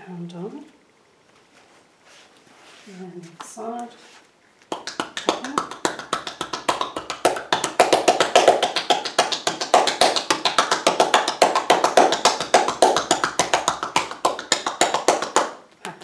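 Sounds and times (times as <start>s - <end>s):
hands slapping bare back: 4.7s - 16.0s.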